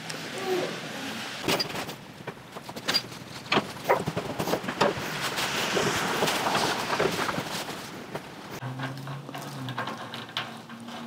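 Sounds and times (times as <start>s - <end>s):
metal clanks and knocks: 1.4s - 5.0s, 6.9s - 11.0s
scraping and rustling: 1.4s - 11.0s.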